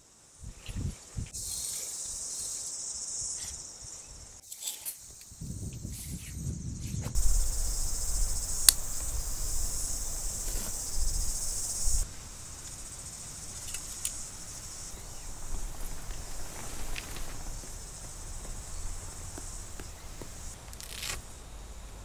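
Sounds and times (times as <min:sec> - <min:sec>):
high-pitched insect chorus: 0:00.0 - 0:22.0
low rumble: 0:07.2 - 0:12.5.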